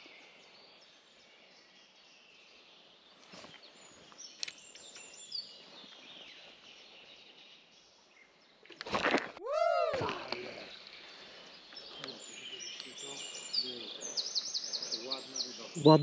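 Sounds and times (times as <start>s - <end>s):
faint bird chirps: 9.5s - 16.0s.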